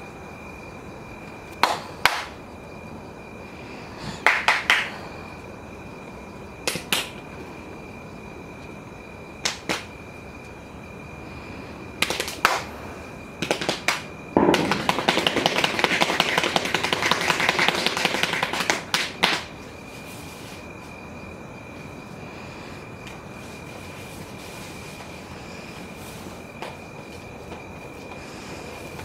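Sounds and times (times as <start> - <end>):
faint high whine: 0.0 - 29.0
sharp percussive smacks: 1.6 - 2.4, 4.2 - 4.9, 6.6 - 7.2, 9.4 - 9.9, 12.0 - 12.7, 13.4 - 19.5
rapid clattering strikes: 13.4 - 19.4.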